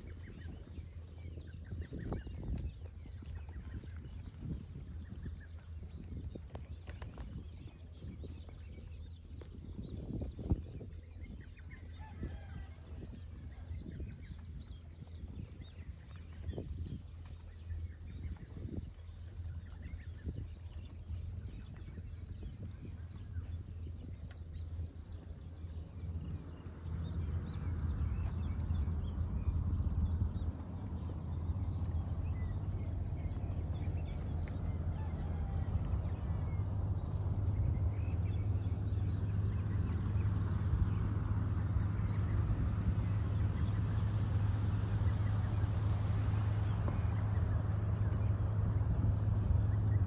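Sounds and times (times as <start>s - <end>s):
steady low rumble: 0.0s - 50.0s.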